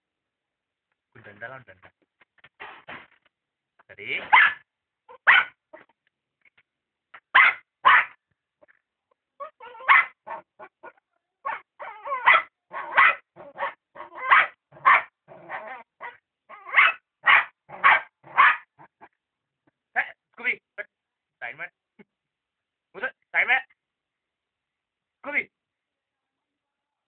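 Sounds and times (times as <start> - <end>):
dog barking: 4.2 - 5.9, 7.2 - 8.2, 9.4 - 19.1.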